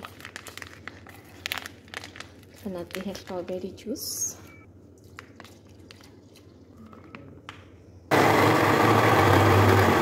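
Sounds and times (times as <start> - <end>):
blender running: 8.1 - 10.0.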